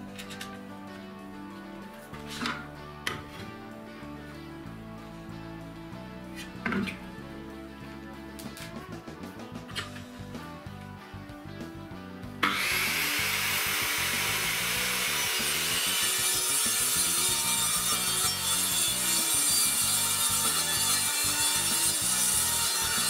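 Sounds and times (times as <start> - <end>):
background music: 0.0 - 23.0
circular saw cutting wood: 12.4 - 23.0.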